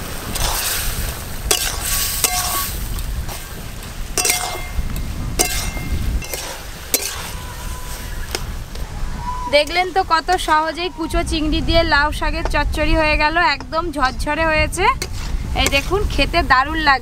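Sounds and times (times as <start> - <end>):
food sizzling in wok: 0.0 - 8.6
metal spatula clinking on wok: 1.5 - 2.7, 4.2 - 4.8, 5.4 - 7.3.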